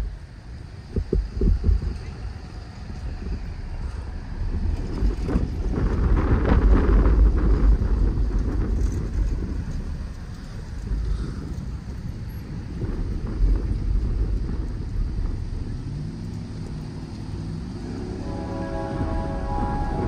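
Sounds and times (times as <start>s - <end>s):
wind rumble on microphone: 0.0s - 20.0s
vehicle passing: 12.9s - 20.0s.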